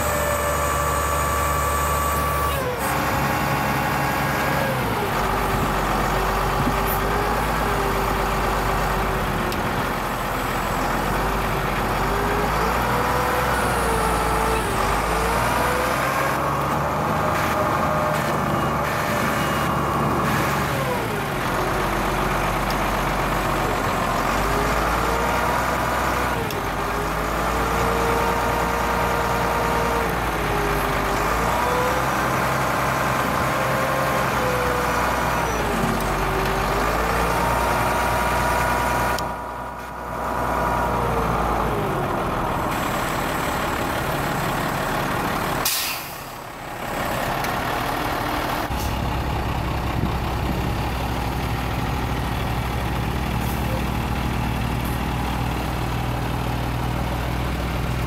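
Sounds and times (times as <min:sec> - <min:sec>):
hydraulic whine: 0:00.0 - 0:04.6
diesel engine idling: 0:00.0 - 0:58.0.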